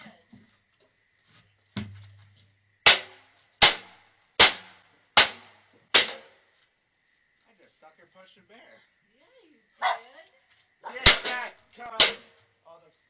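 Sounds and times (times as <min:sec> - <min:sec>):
loud sharp cracks: 0:02.8 - 0:06.4, 0:10.9 - 0:12.4.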